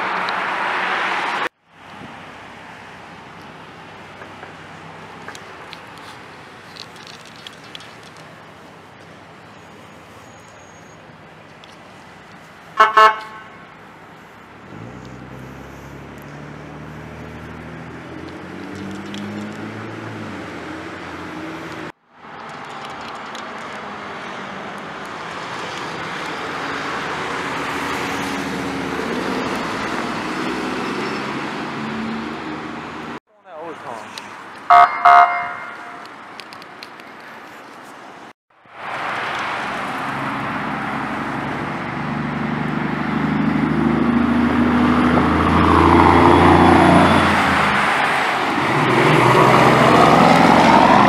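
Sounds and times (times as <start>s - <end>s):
vehicle horn toots: 12.8s - 13.6s, 34.7s - 36.1s
truck diesel engine passing: 14.0s - 22.6s, 23.7s - 33.2s, 38.8s - 51.0s
car engine accelerating: 14.7s - 22.0s, 39.9s - 51.0s.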